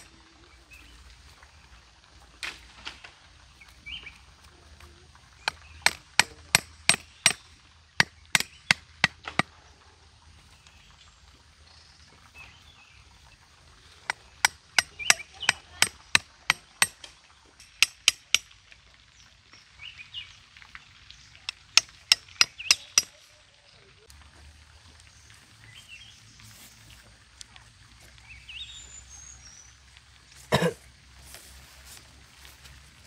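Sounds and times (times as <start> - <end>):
knife chopping bamboo: 5.5 - 7.4.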